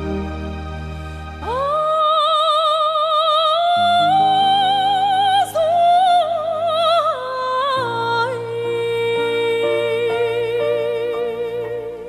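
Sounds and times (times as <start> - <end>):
band playing sustained chords: 0.0 - 1.7
woman singing classical style: 1.4 - 12.0.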